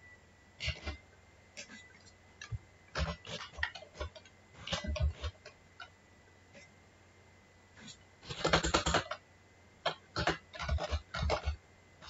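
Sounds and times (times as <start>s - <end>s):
keyboard typing: 1.6s - 5.9s, 8.2s - 9.2s, 9.8s - 11.6s.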